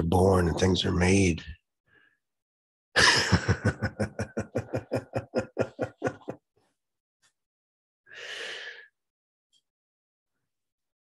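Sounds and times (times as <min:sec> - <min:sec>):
man laughing: 0:03.0 - 0:06.4.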